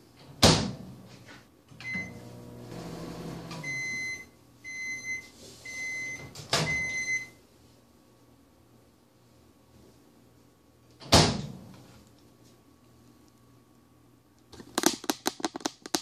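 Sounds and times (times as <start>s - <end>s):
microwave oven humming: 1.7s - 7.5s
keypad beep: 3.6s - 7.3s
long end-of-cycle beeps: 3.6s - 7.4s.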